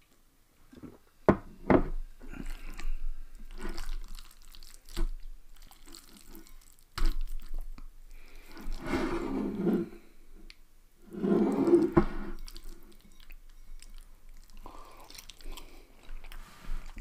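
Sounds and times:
wet squelches: 0:02.3 - 0:08.9
fork scraping glass bowl: 0:08.6 - 0:10.0, 0:11.1 - 0:13.8.

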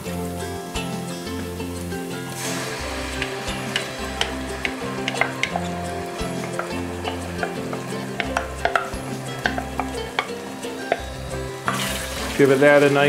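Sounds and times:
onions sizzling in pot: 0:00.0 - 0:13.0
wooden spoon scraping glass: 0:02.5 - 0:12.6.

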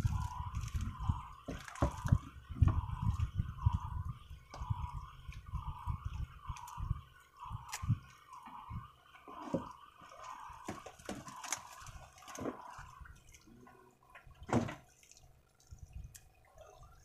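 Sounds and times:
wind rumble on microphone: 0:00.0 - 0:09.8, 0:15.7 - 0:17.0
water lapping against boat: 0:00.0 - 0:17.0.

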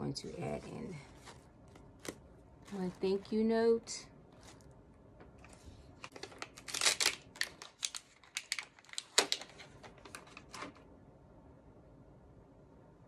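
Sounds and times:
tissue paper crinkling: 0:04.3 - 0:04.8, 0:05.4 - 0:10.8.

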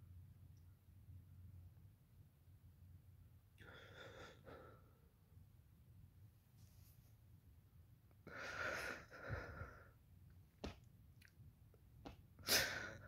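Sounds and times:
man breathing heavily: 0:08.3 - 0:10.0.

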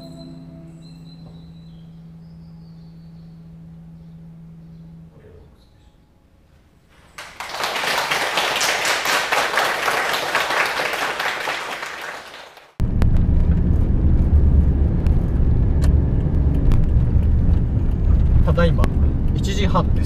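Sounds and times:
audience applauding: 0:07.2 - 0:12.8
van engine and road rumble: 0:12.8 - 0:20.0.

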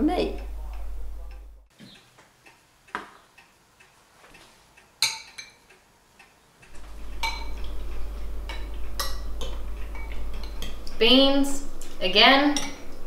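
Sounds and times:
spoons clinking against bowls: 0:05.0 - 0:05.7, 0:06.8 - 0:11.0, 0:12.4 - 0:13.0.

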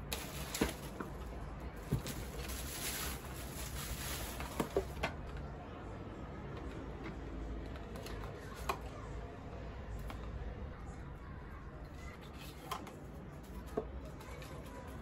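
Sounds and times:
packaging rustling: 0:00.0 - 0:05.0.

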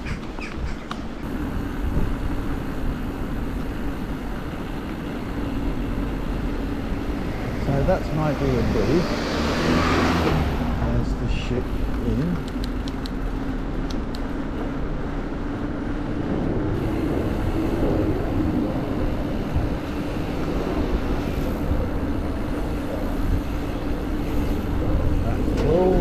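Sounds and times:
wind noise on microphone: 0:00.0 - 0:03.7, 0:14.9 - 0:26.0
road noise: 0:00.0 - 0:26.0
vehicle engine humming: 0:00.0 - 0:26.0.

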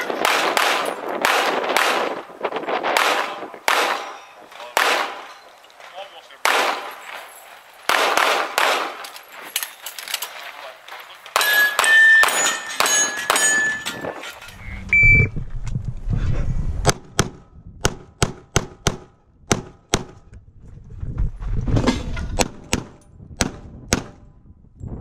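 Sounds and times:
pistol shots: 0:00.0 - 0:02.2, 0:02.8 - 0:05.4, 0:06.4 - 0:09.2, 0:11.3 - 0:13.7
metal targets ringing: 0:11.3 - 0:14.6.

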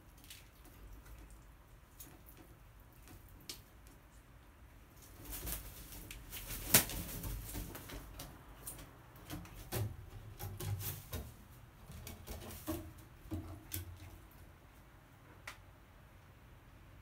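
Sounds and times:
wing flaps: 0:05.1 - 0:08.2.

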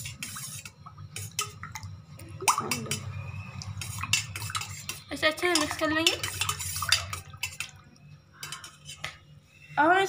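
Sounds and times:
water dripping and splashing: 0:00.2 - 0:09.0
spoon clinking against bowl: 0:02.4 - 0:03.2, 0:03.8 - 0:07.8, 0:08.4 - 0:09.2.

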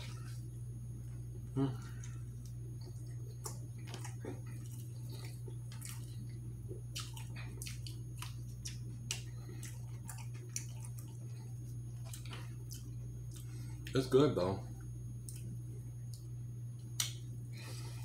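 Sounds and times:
steady low hum: 0:00.0 - 0:18.0
wet chewing: 0:01.9 - 0:13.9.

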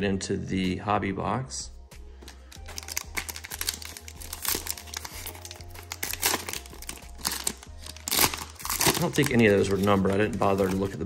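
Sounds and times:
foil wrapper crinkling and tearing: 0:02.5 - 0:11.0.

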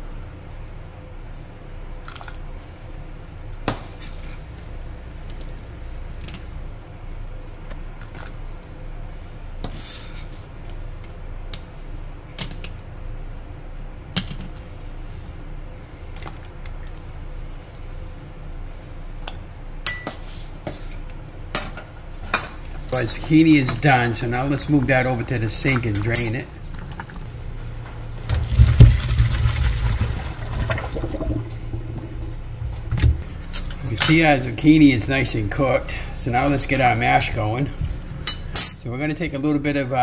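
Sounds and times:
steady low rumble: 0:22.8 - 0:38.2.

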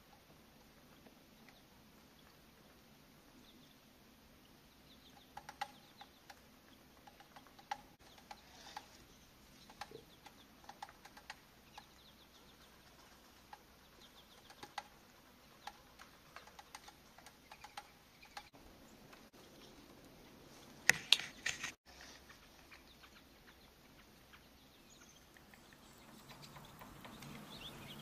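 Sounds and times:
songbirds twittering: 0:00.0 - 0:28.0
sharp bird chips: 0:13.6 - 0:18.6.

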